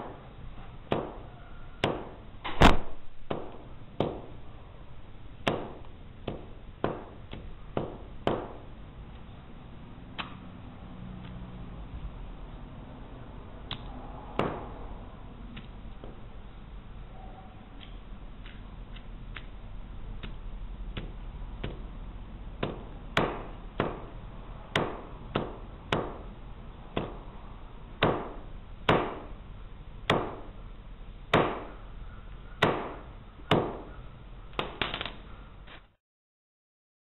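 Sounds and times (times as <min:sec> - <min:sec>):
hammer striking on concrete: 0:22.6 - 0:26.3.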